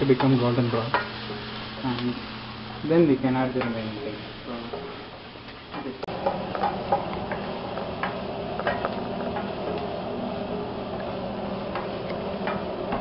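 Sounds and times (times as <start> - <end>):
onions sizzling in oil: 0.0 - 13.0.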